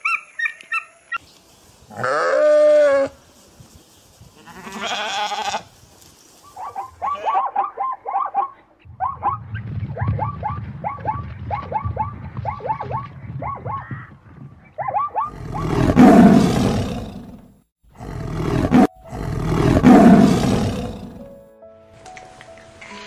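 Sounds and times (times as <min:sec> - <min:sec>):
zebras yelping barks: 0:06.4 - 0:09.4, 0:10.0 - 0:14.0, 0:14.8 - 0:16.4
tiger roaring: 0:15.3 - 0:21.3.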